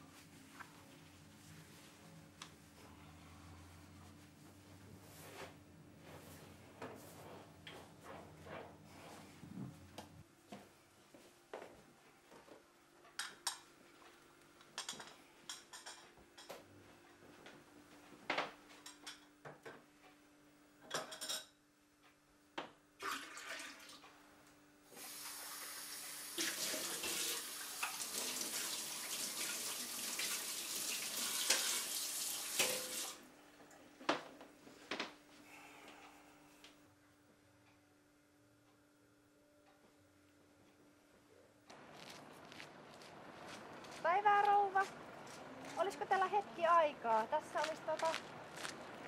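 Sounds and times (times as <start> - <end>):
dishes clinking at a sink: 20.8 - 21.6, 32.6 - 33.1
tap water running: 23.0 - 24.1, 24.9 - 33.2.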